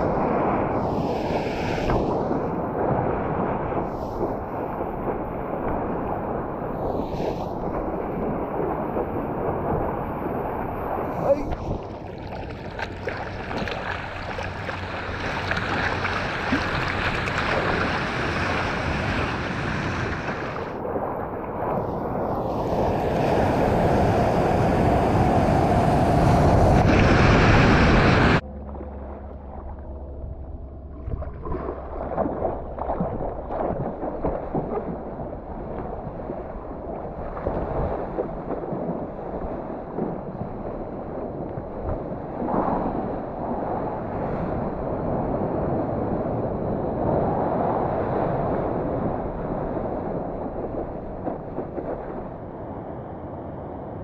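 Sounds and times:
small waves breaking: 0.0s - 28.4s
seawater splashing and lapping: 0.0s - 43.7s
rushing water and wind noise: 0.0s - 54.0s.

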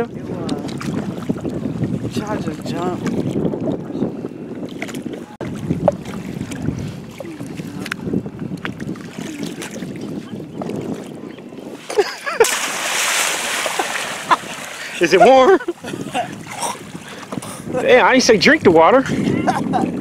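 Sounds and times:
wind buffeting microphone: 0.0s - 20.0s
splash into water: 12.4s - 15.0s.

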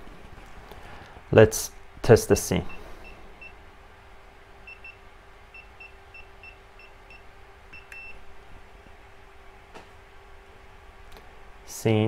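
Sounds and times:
faint steady hum: 0.0s - 12.0s
keypad beeps: 4.7s - 5.0s, 7.8s - 8.2s.

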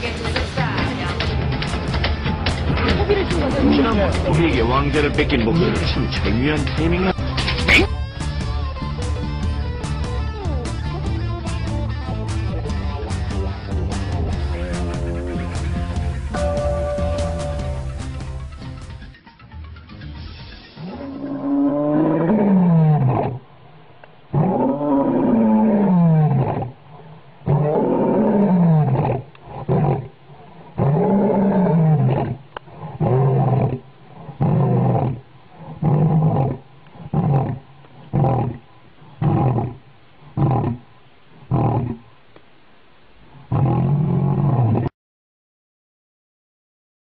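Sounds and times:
lion roaring: 1.4s - 7.9s, 20.8s - 42.1s, 43.3s - 44.9s
lion grunting calls: 2.3s - 8.0s, 20.8s - 42.1s, 43.3s - 44.9s.

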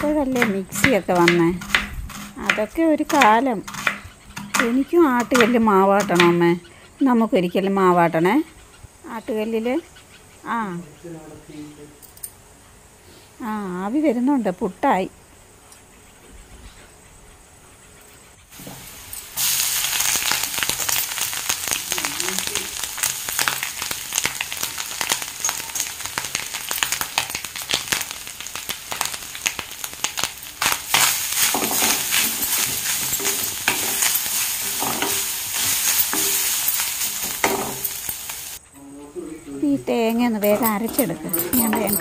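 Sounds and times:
spices sizzling in hot oil: 0.0s - 6.4s, 18.5s - 38.6s
wooden spatula stirring: 30.6s - 38.6s.

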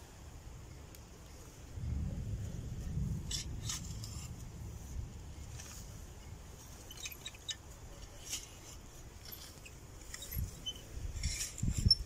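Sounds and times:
rustles of straw: 0.0s - 12.0s
digging tool scraping soil: 3.2s - 12.0s.

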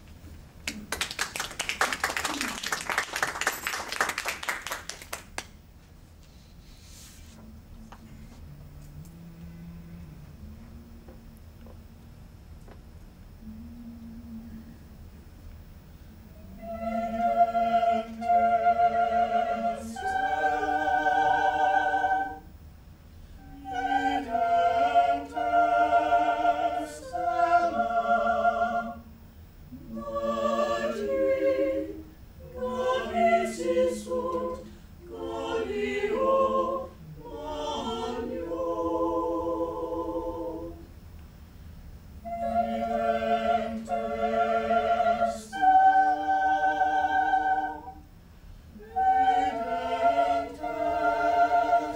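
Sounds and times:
singers breathing: 6.2s - 7.4s, 34.6s - 35.0s
choir singing a cappella: 16.3s - 22.6s, 23.4s - 40.9s, 42.2s - 51.9s.

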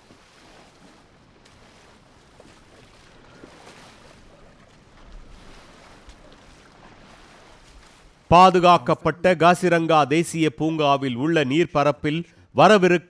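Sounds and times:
small water splashes: 0.0s - 8.4s
water washing: 0.0s - 8.9s.

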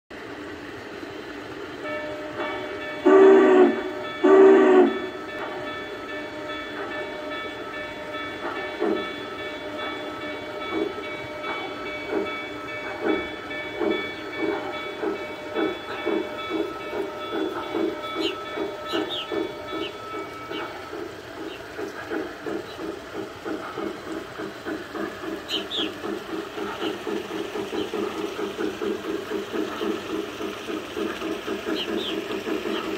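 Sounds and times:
model locomotive chuffing: 0.2s - 32.9s
steam locomotive whistle blasts: 1.8s - 5.3s.

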